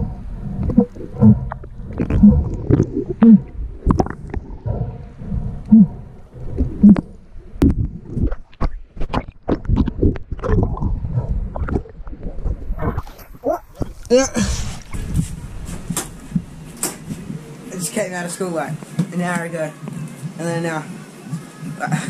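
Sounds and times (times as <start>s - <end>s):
low groaning tones bending in pitch: 0.0s - 8.2s
muffled underwater rumbling: 0.0s - 17.8s.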